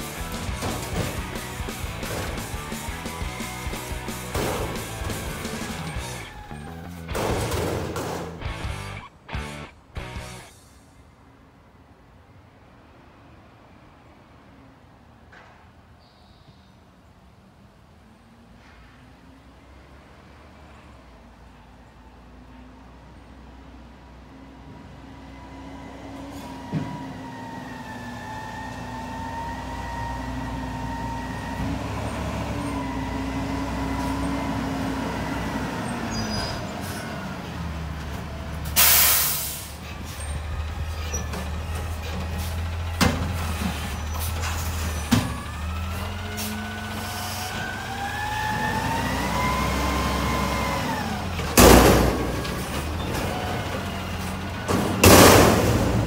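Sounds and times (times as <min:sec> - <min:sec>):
garbage truck engine running: 0:00.0 - 0:10.7, 0:24.4 - 0:56.0
metal clunks: 0:00.1 - 0:09.0
air brake hissing: 0:10.5 - 0:11.1, 0:38.6 - 0:40.4.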